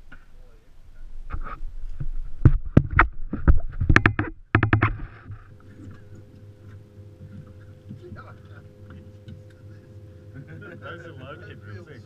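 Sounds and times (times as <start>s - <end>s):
faint steady hum: 0.0s - 12.0s
fishing tackle knocking and clicking: 3.9s - 5.0s.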